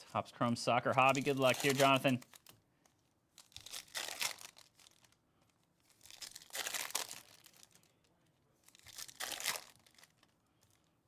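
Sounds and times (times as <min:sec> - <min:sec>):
foil packs crinkling and tearing: 0:01.0 - 0:02.5, 0:03.4 - 0:05.2, 0:05.9 - 0:07.9, 0:08.7 - 0:10.3.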